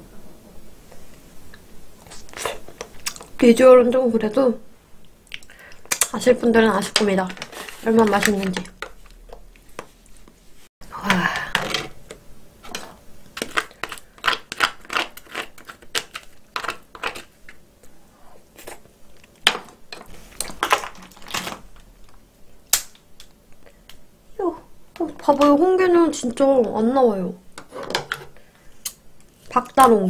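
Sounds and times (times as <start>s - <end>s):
wet eating sounds: 2.0s - 3.4s
crab shells cracking: 13.4s - 17.6s, 20.4s - 23.4s.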